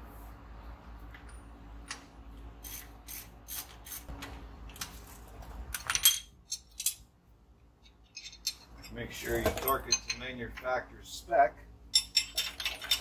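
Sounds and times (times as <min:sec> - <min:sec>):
hand tools clinking: 0:07.8 - 0:10.7, 0:11.9 - 0:13.0
metal clatter: 0:11.9 - 0:13.0.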